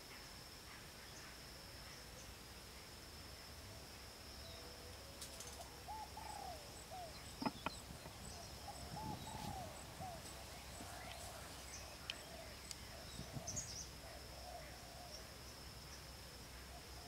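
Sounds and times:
high insect drone: 0:00.0 - 0:17.0
low arched bird calls: 0:05.4 - 0:16.0
bamboo poles knocking: 0:07.4 - 0:07.8.

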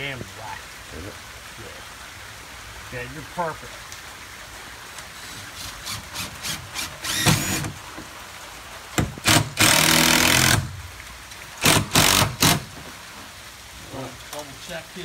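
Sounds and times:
cordless drill driving screw: 0:05.2 - 0:07.7, 0:11.6 - 0:12.6.

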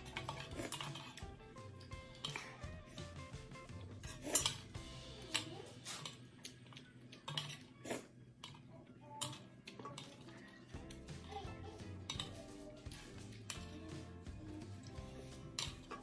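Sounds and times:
slurping: 0:00.0 - 0:03.1
soft background music: 0:00.0 - 0:16.0
utensils clinking against bowl: 0:00.0 - 0:16.0.

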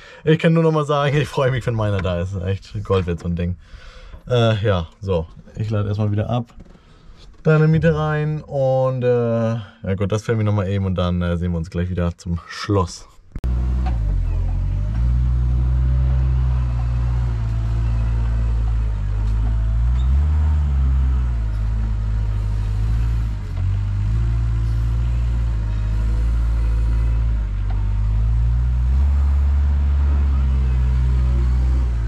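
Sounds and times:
diesel farm machinery running: 0:13.4 - 0:32.0.

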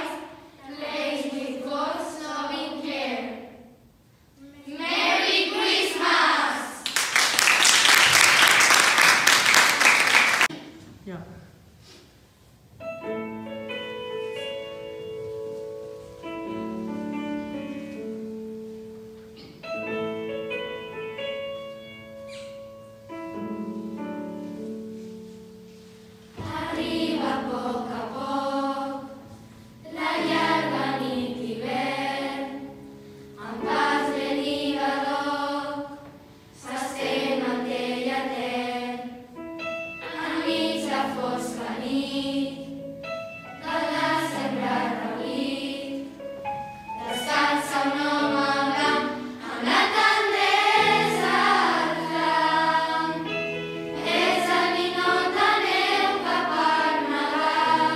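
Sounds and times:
girls choir singing carol: 0:00.0 - 0:03.6, 0:04.6 - 0:10.5, 0:26.4 - 0:39.4, 0:40.0 - 0:42.8, 0:43.6 - 0:57.9.

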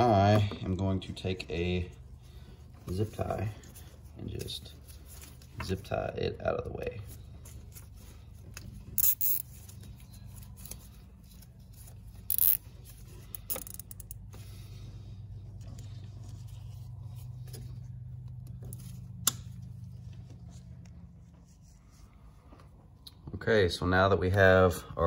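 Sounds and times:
zip tie ratcheting: 0:09.0 - 0:09.5, 0:12.1 - 0:12.7, 0:13.3 - 0:14.2.

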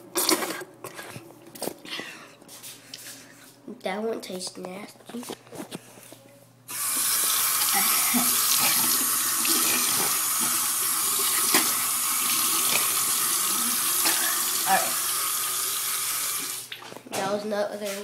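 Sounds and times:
tap running in steady stream: 0:06.7 - 0:17.3.

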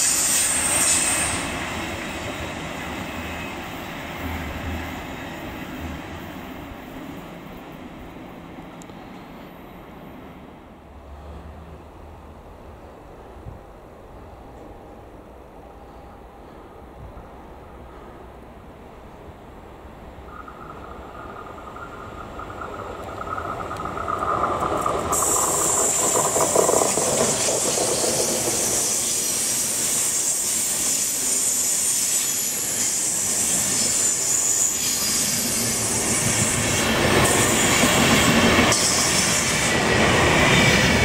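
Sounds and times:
electric locomotive whine: 0:00.0 - 0:41.0
wheel-on-rail noise: 0:18.9 - 0:41.0
high-pitched wheel squeal: 0:20.3 - 0:38.0.

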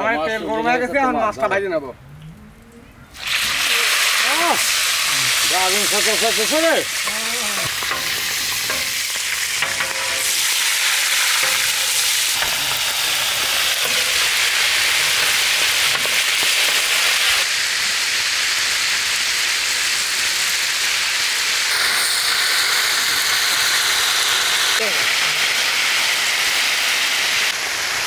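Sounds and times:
fish frying in hot oil: 0:03.1 - 0:28.0
spatula scraping griddle: 0:06.4 - 0:12.8
metal clicks on griddle: 0:09.6 - 0:10.4.

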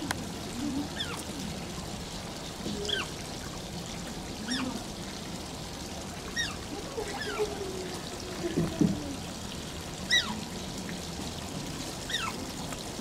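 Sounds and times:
running water: 0:00.0 - 0:13.0.

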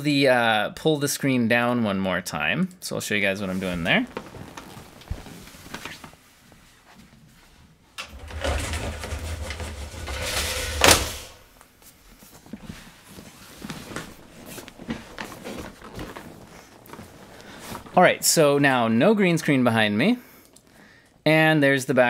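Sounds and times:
faint knocks and rustling: 0:04.1 - 0:18.0
screen rumbling slide: 0:08.0 - 0:11.4.

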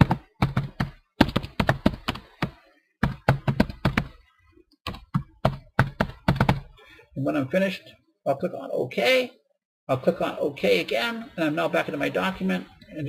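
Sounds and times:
typing on computer keyboard: 0:00.0 - 0:04.2, 0:04.9 - 0:06.7.

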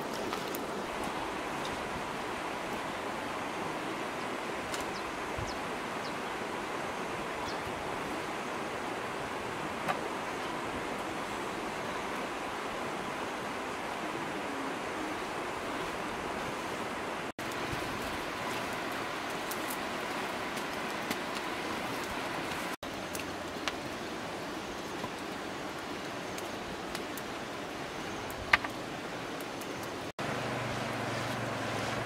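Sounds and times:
wood fire crackling: 0:00.0 - 0:03.0, 0:17.4 - 0:32.0
river flowing: 0:00.0 - 0:32.0.

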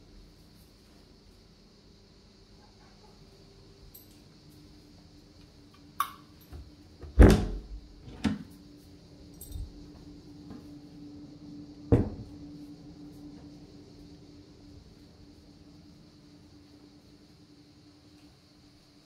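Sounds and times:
faint steady hum: 0:00.0 - 0:19.0
door knocks and thuds: 0:07.0 - 0:08.3, 0:11.9 - 0:12.3.

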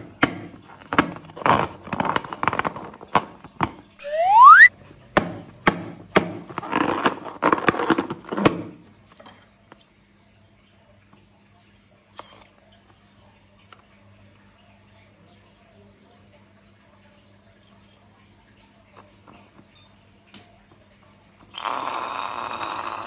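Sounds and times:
rising squeal: 0:04.0 - 0:04.7.

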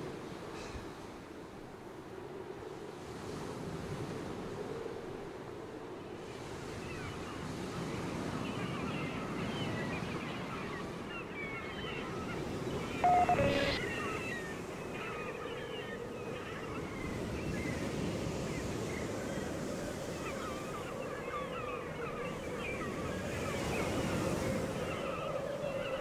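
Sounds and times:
wind: 0:00.0 - 0:26.0
gulls calling: 0:11.6 - 0:16.8
surf: 0:12.9 - 0:14.1
faint low tone: 0:13.0 - 0:13.8.

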